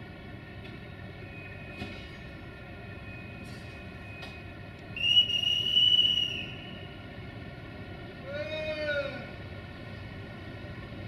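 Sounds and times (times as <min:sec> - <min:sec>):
diesel locomotive engine hum: 0:00.0 - 0:11.0
loud high whistle: 0:05.0 - 0:06.9.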